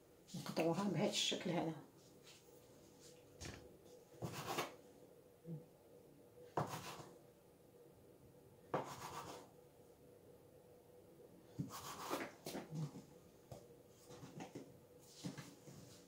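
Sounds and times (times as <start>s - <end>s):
knife cutting dough: 4.2s - 4.8s, 6.6s - 7.1s, 11.6s - 12.9s.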